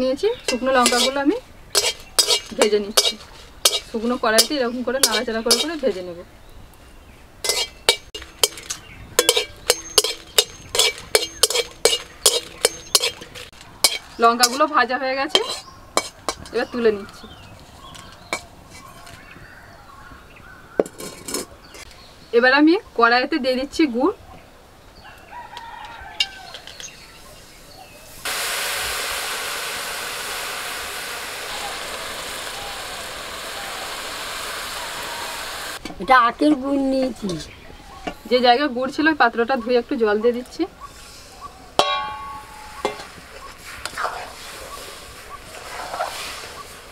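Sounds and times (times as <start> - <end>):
liquid sizzling in hot wok: 0.4 - 6.0, 7.4 - 16.7, 28.0 - 35.8, 41.9 - 46.9
metal spatula scraping metal pan: 0.5 - 6.0, 7.4 - 16.8
empty pan ringing: 7.5 - 14.7, 41.8 - 43.1.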